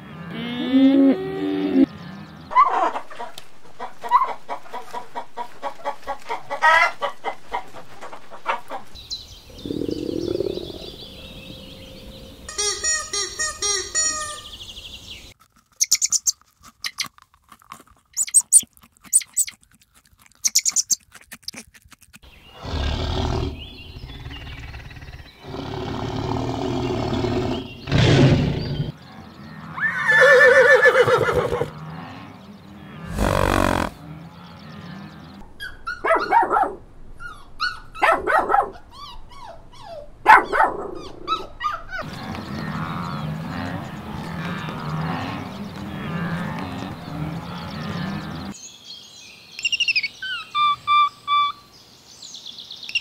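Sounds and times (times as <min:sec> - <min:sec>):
rabbit crunching carrot: 0:15.4 - 0:22.3
loud animal calls: 0:33.0 - 0:34.1.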